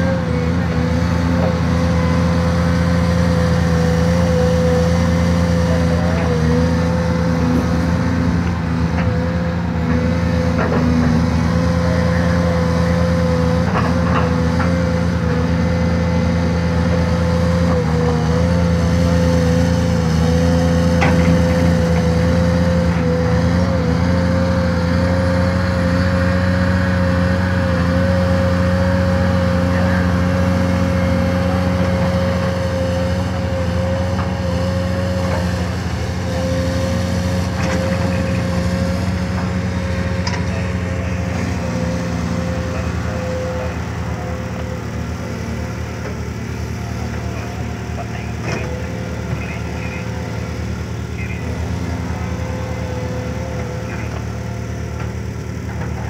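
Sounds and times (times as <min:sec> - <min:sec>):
excavator diesel engine running: 0:00.0 - 0:56.0
steady whine: 0:27.1 - 0:56.0.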